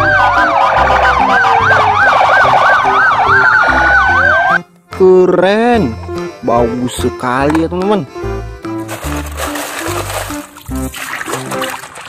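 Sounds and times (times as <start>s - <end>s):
police sirens yelping and wailing: 0.0s - 4.6s.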